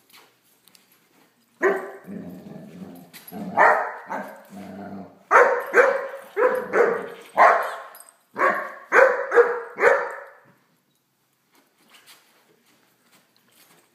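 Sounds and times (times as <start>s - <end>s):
puppy barking: 1.6s - 2.1s, 3.5s - 4.4s, 5.3s - 10.4s.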